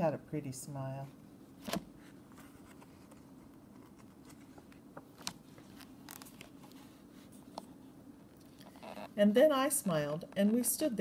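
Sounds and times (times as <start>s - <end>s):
low room hum: 0.0s - 11.0s
paper page turning: 2.4s - 7.0s.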